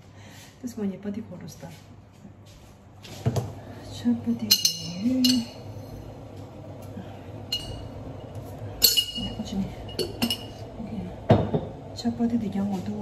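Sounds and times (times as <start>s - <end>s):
glass jar clinking: 4.4s - 5.6s, 7.5s - 8.0s, 8.8s - 10.6s.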